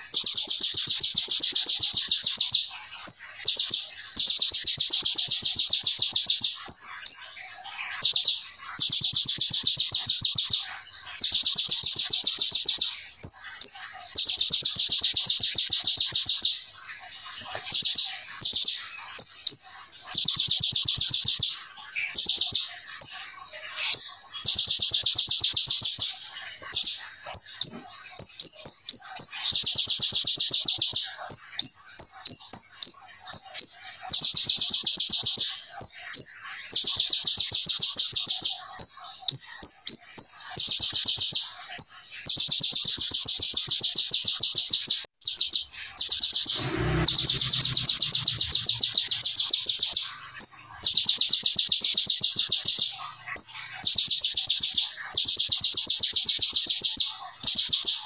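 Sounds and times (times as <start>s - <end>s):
bird sharp chirps: 0.0s - 58.0s
bird buzzing trills: 45.3s - 54.2s.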